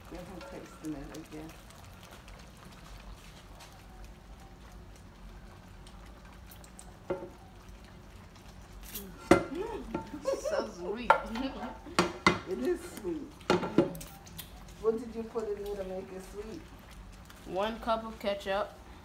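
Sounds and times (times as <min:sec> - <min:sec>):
utensils stirring sauce in pan: 0:06.3 - 0:18.2
utensils clacking against pan: 0:09.0 - 0:10.2, 0:11.0 - 0:14.0.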